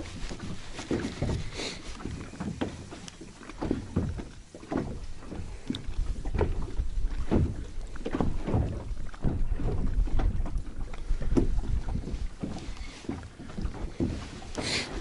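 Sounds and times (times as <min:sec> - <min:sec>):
water slapping against boat: 0:00.0 - 0:15.0.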